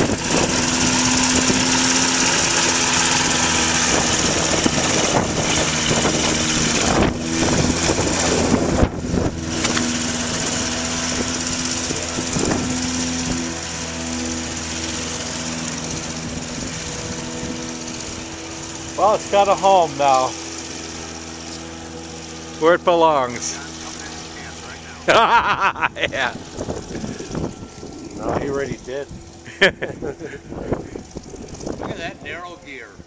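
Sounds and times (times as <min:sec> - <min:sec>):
light aircraft engine droning: 0:00.0 - 0:33.0.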